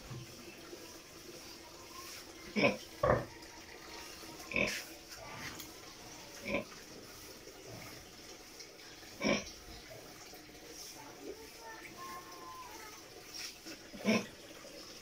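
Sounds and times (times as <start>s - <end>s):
pig grunting: 9.2s - 9.5s.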